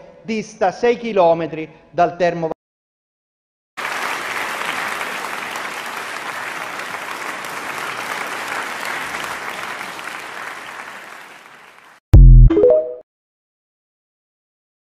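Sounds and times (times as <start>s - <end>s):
crowd applause: 3.8s - 12.0s.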